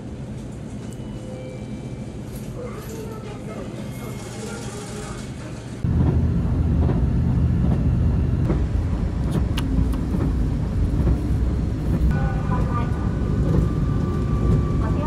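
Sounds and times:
train rumble inside carriage: 0.0s - 15.0s.

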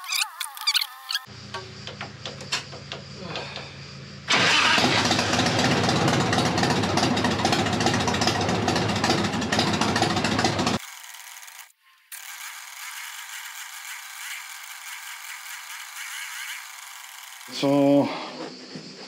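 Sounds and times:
motorcycle engine running: 4.4s - 10.8s.

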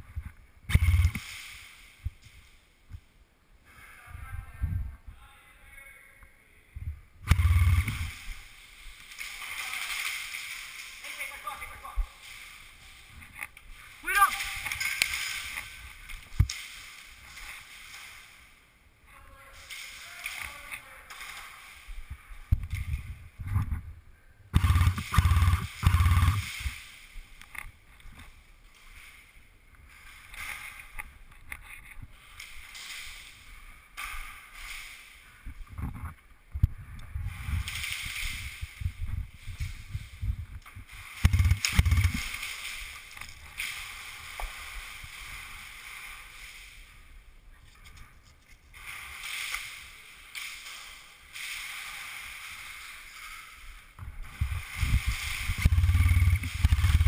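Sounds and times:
sharp clicks and knocks: 24.6s - 26.7s, 40.5s - 42.5s.

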